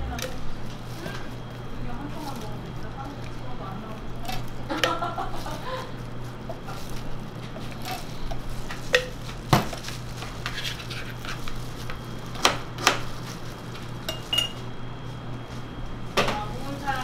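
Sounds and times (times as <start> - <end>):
steady low hum: 0.0 - 17.0
metal utensils clinking: 14.0 - 14.6.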